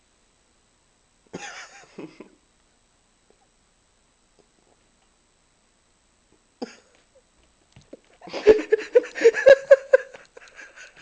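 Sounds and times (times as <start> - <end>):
person giggling: 1.3 - 2.4, 6.6 - 7.0, 8.2 - 11.0.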